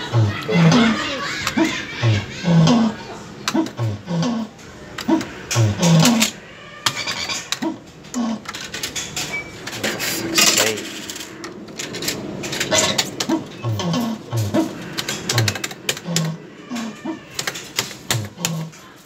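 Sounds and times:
arcade clatter: 0.0 - 19.0.

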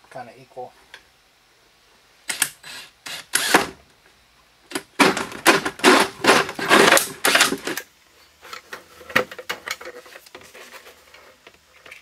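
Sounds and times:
power drill hole saw cutting plastic: 2.3 - 3.8, 5.2 - 7.8.

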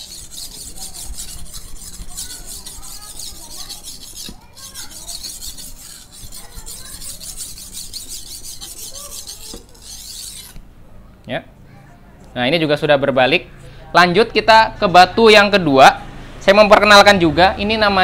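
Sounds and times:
blade scraping on whetstone: 0.0 - 10.6.

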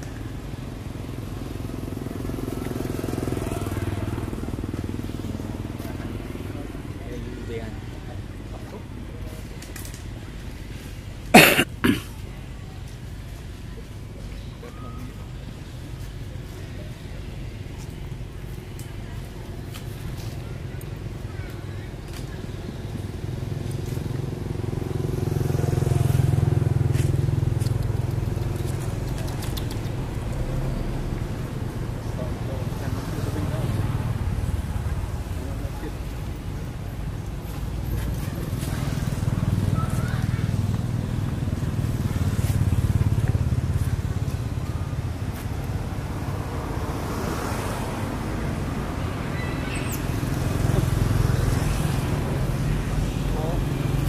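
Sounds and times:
vehicle engine passing: 23.4 - 54.0
faint high clicks: 27.6 - 30.1.

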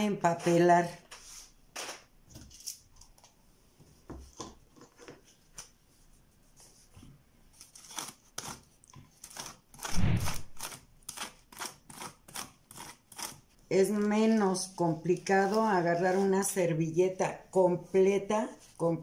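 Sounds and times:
thud: 9.9 - 10.6
paintbrush rustling on foil: 13.9 - 16.8.

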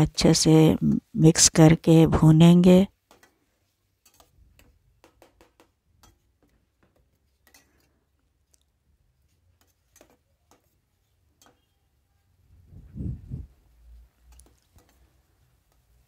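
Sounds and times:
spoon stirring pan: 2.3 - 12.6, 13.5 - 16.0
food frying with faint clicks: 2.9 - 12.0, 13.7 - 16.0.

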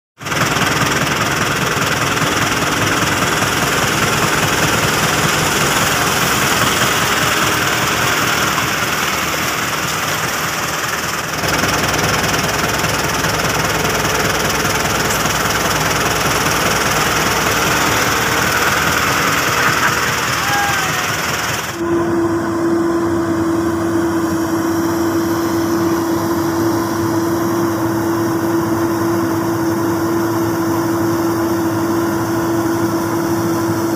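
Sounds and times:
tractor diesel engine knocking: 0.2 - 21.8.

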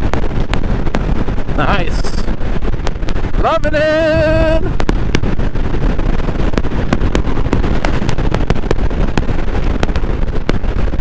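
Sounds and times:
wind rush on microphone: 0.0 - 11.0
motorcycle engine cruising: 4.2 - 11.0.

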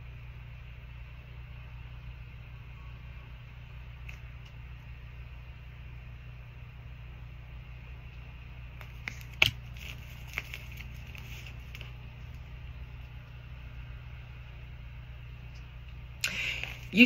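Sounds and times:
steady low hum: 0.0 - 17.0
tarot cards clicking: 8.8 - 11.9
cards rustling: 8.8 - 12.5.

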